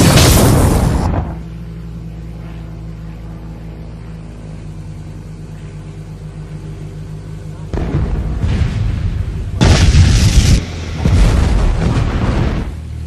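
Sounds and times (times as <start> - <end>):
cartoon explosion: 0.0 - 1.4, 7.8 - 12.8
spaceship engine droning hum: 0.0 - 13.0.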